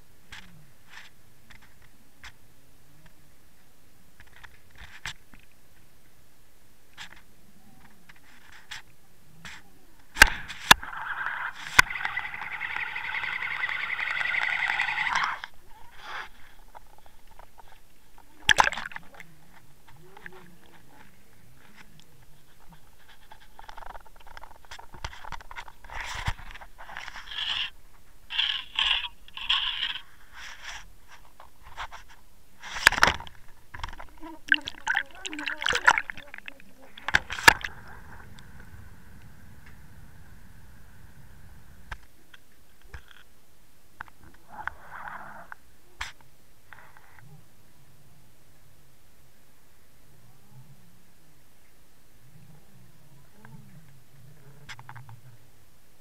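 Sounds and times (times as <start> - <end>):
rubbing and scraping on camera: 0.3 - 2.4, 4.2 - 5.6, 6.9 - 38.8
water rushing against housing: 17.6 - 19.9, 32.9 - 38.9.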